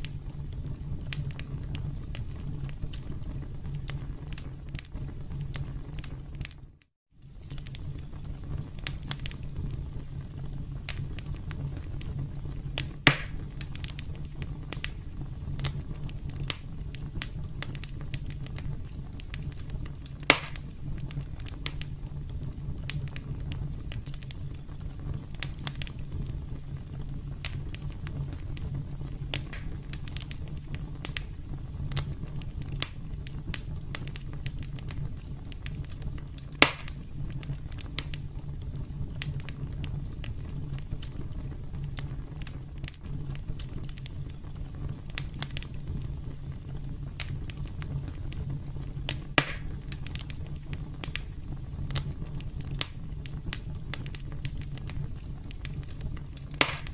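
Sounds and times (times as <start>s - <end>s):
campfire crackling: 0.0s - 56.9s
sharp pops of fire: 0.0s - 56.9s.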